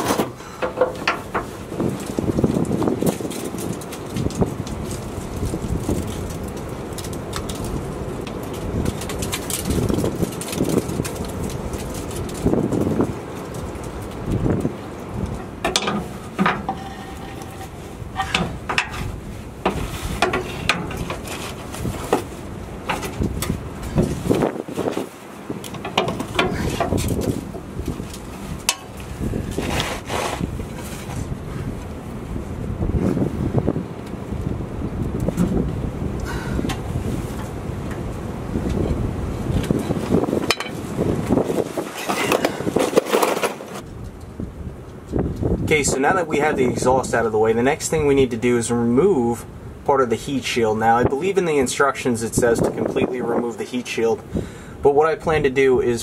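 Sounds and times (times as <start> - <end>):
metal knocking and rattling: 0.0 - 2.2, 15.2 - 24.2, 25.6 - 29.0, 39.8 - 40.8.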